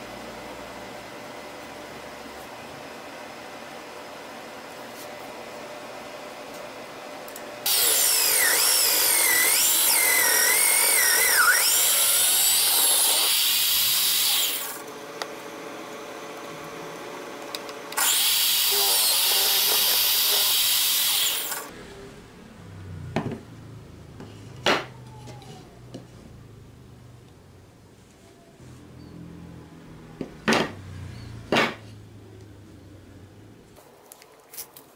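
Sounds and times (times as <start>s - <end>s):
drill press boring into wood: 7.7s - 14.8s, 18.0s - 21.7s.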